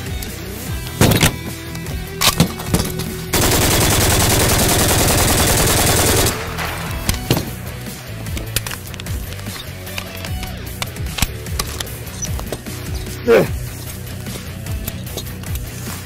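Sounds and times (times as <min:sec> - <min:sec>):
background music: 0:00.0 - 0:16.0
machine gun full-auto burst: 0:03.3 - 0:07.0
sharp gunshot bangs: 0:05.5 - 0:07.7.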